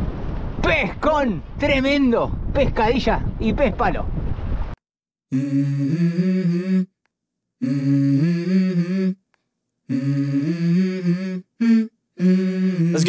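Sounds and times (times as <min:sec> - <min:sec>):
person humming a melody: 0:05.3 - 0:07.0, 0:07.6 - 0:09.2, 0:09.9 - 0:13.0.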